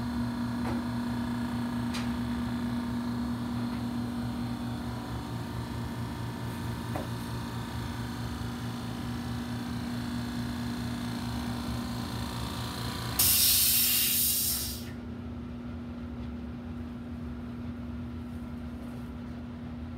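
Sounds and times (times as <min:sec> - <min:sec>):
pulsing machine hum: 0:00.0 - 0:13.7
loud hiss of spray: 0:13.2 - 0:14.9.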